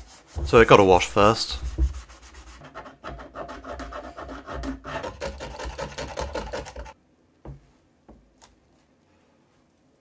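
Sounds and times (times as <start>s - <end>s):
brush scrubbing plastic bottle: 0.0s - 7.0s.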